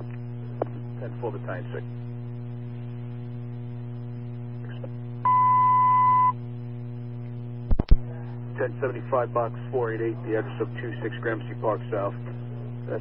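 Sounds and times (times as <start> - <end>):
low radio hum: 0.0 - 13.0
radio alert beep: 5.3 - 6.3.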